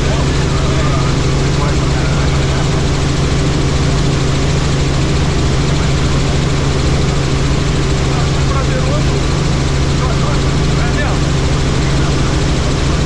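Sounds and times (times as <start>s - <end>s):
helicopter rotor and engine drone: 0.0s - 13.0s.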